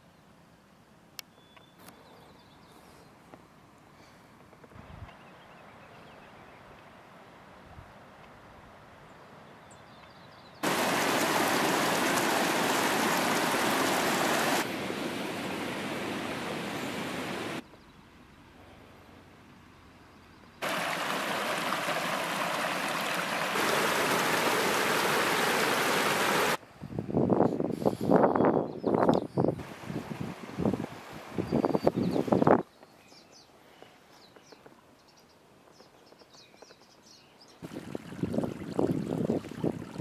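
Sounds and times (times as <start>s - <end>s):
stream rushing over rocks: 10.6s - 17.6s, 20.6s - 26.6s.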